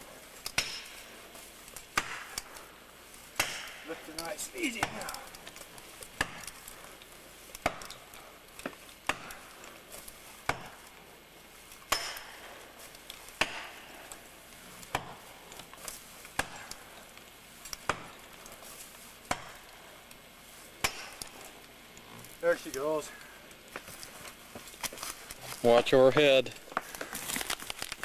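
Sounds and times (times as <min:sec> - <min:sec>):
blows driving a wedge into wood: 0:00.4 - 0:01.2, 0:01.8 - 0:11.0, 0:11.8 - 0:16.9, 0:17.7 - 0:19.8, 0:20.6 - 0:21.7.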